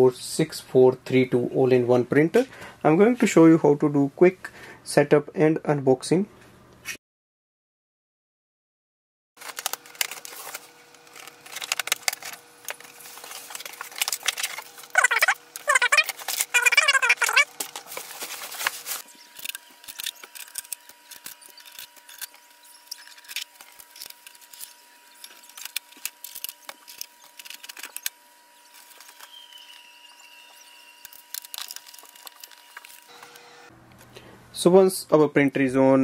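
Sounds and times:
packaging rustling: 0:09.4 - 0:29.9, 0:30.5 - 0:33.2
loud squeaks: 0:14.9 - 0:17.5.

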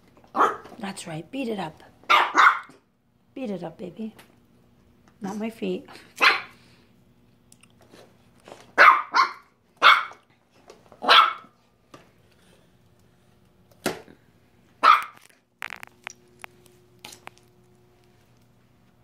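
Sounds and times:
small dog barking: 0:00.3 - 0:00.7, 0:02.1 - 0:02.8, 0:06.2 - 0:06.6, 0:08.8 - 0:10.2, 0:11.0 - 0:11.5, 0:14.8 - 0:15.2.

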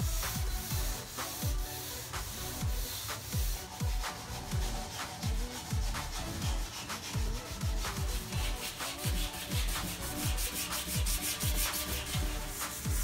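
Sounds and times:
electronic music with kick drums: 0:00.0 - 0:13.0
sanding block rasping on wood: 0:00.0 - 0:13.0.

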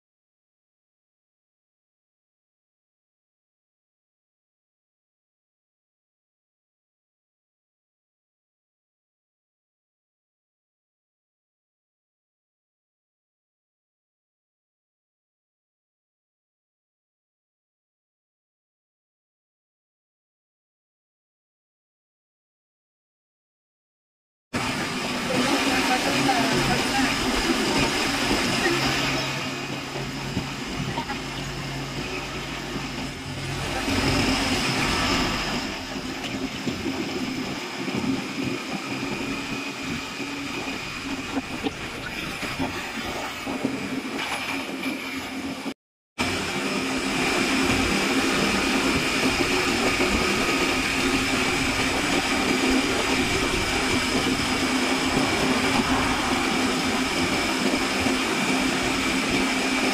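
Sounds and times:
vehicle engine and road noise: 0:52.4 - 0:59.8.

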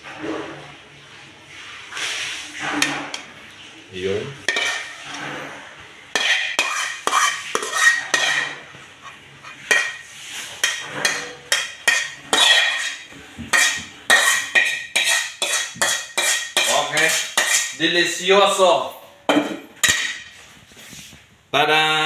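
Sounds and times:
utensil scraping and knocking a wok: 0:02.1 - 0:03.3, 0:04.4 - 0:18.2, 0:19.3 - 0:20.4.

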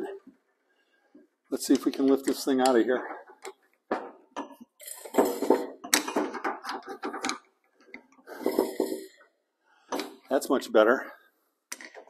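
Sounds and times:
metal tools clinking and scraping: 0:08.3 - 0:09.2.

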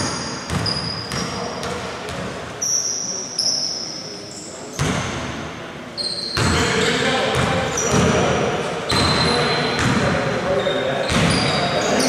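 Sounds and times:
basketball bouncing on wooden floor: 0:09.8 - 0:10.0.

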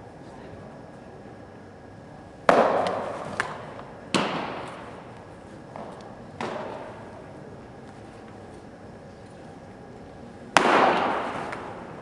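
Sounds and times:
baseball smacking into mitt: 0:02.5 - 0:04.8.

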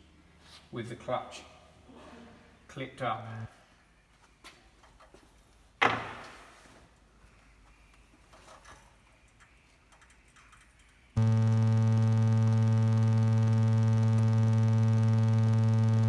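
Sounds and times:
electrical hum with low buzz: 0:11.2 - 0:16.0.

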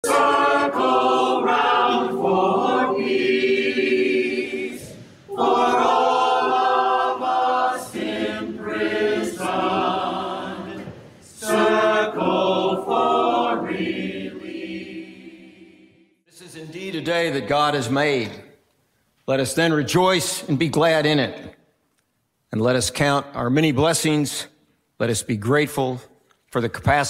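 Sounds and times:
choir singing a cappella: 0:00.0 - 0:16.1.

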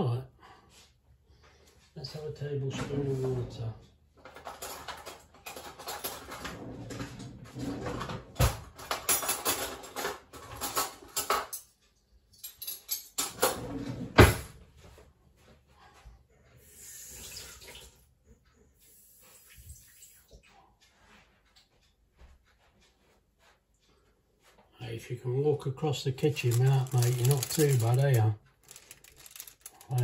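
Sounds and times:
metal cutlery clattering: 0:04.2 - 0:14.1, 0:26.2 - 0:30.0.

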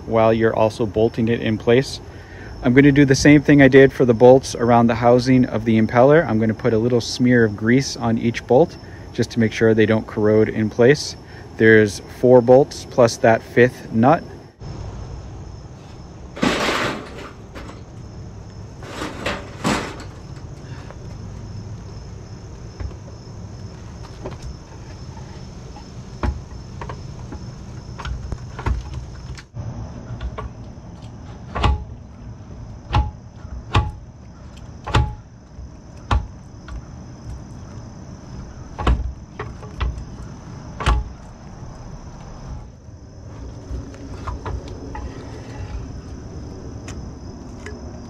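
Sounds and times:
high insect trill: 0:00.0 - 0:48.0
sharp metal knocks and clunks: 0:16.3 - 0:18.0, 0:18.8 - 0:20.6, 0:24.0 - 0:29.5, 0:31.2 - 0:32.0, 0:32.8 - 0:37.5, 0:38.7 - 0:41.4.

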